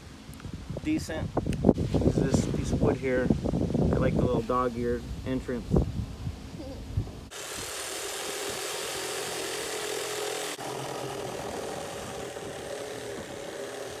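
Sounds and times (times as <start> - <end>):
reciprocating saw cutting plastic: 7.3 - 14.0.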